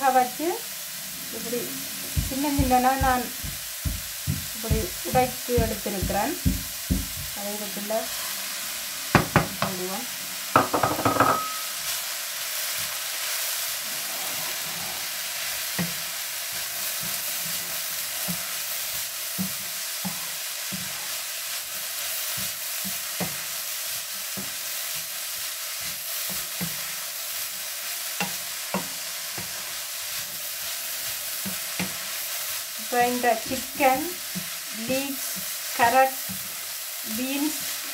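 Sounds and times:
vegetables sizzling in oil: 0:00.0 - 0:37.9
food clattering into pan: 0:10.6 - 0:11.7.

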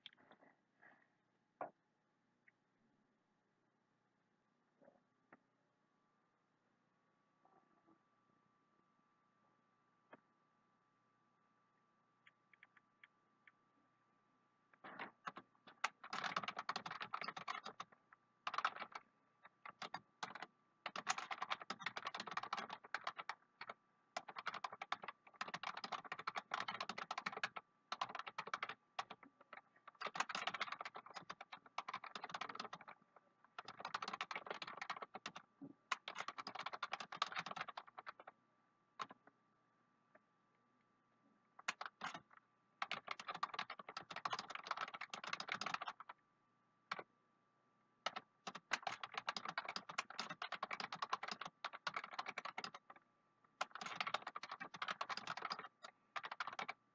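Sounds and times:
computer keyboard typing: 0:14.8 - 0:38.4, 0:39.0 - 0:39.2, 0:41.6 - 0:46.2, 0:48.0 - 0:53.0, 0:53.6 - 0:56.8.

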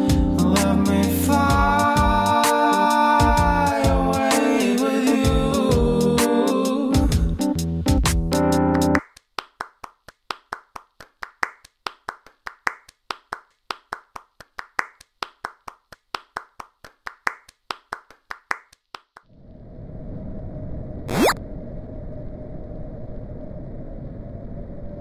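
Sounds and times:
person clapping: 0:09.0 - 0:19.3
low rumble: 0:19.3 - 0:25.0.

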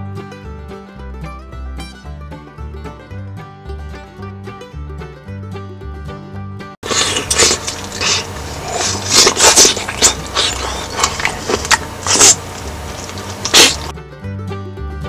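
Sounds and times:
loud slurping and sucking bites: 0:06.8 - 0:13.9.

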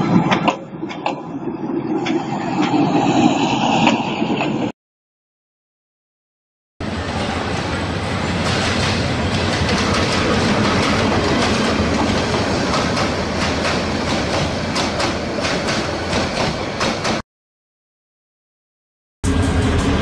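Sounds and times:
train wheels rumbling on rails: 0:00.0 - 0:04.7, 0:06.8 - 0:17.2, 0:19.2 - 0:20.0
wheels clacking over rail joints: 0:07.3 - 0:17.2.

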